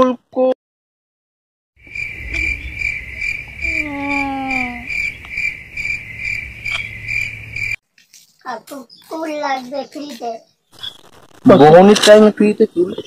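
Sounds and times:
crickets chirping: 1.8s - 7.8s.

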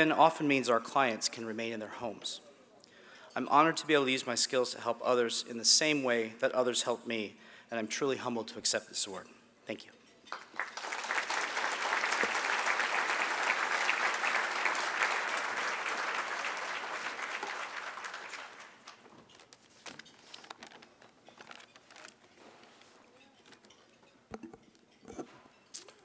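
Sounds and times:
audience applauding: 10.3s - 19.0s.

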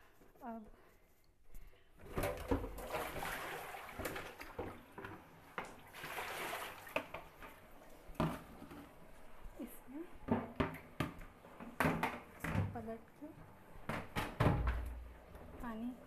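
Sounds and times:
water splashing and dripping: 2.3s - 8.2s.

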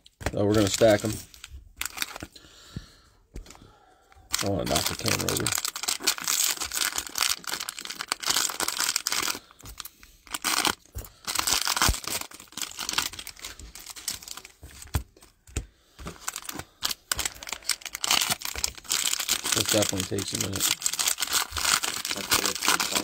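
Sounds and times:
plastic wrappers tearing and crinkling: 0.3s - 2.3s, 4.3s - 15.2s, 16.0s - 23.0s.

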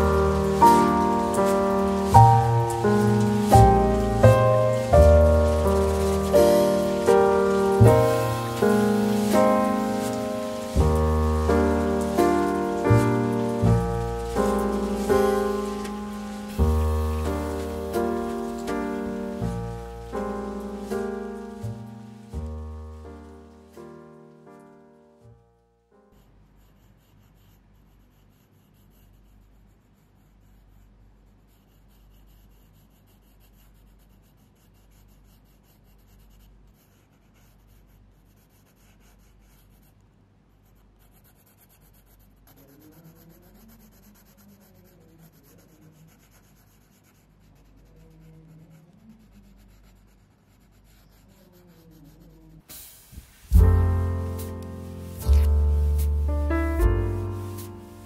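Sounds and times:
pencil scratching on paper: 0.0s - 22.5s, 26.1s - 40.0s, 40.6s - 52.6s, 53.5s - 58.0s
piano background music: 0.0s - 26.2s, 53.5s - 58.0s.

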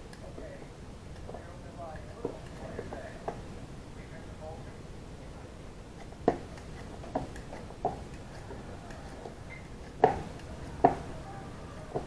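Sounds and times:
peeler scraping potato: 6.0s - 10.8s.

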